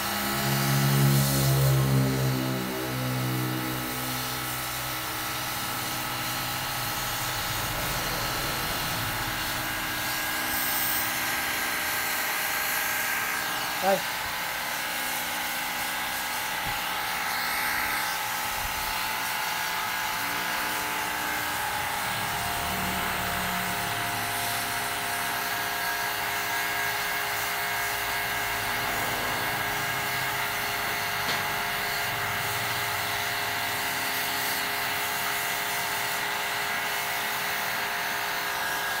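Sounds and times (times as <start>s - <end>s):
pressure washer motor whine: 0.0s - 39.0s.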